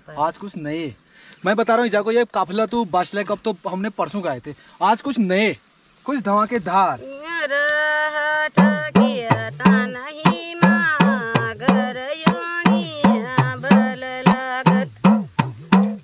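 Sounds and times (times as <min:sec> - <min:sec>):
hourglass drum beaten by hand: 0:08.5 - 0:16.0.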